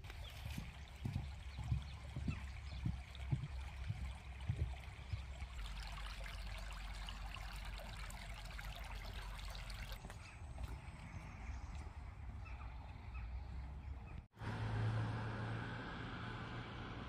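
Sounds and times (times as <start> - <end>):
stream rippling over rocks: 0.0 - 10.0.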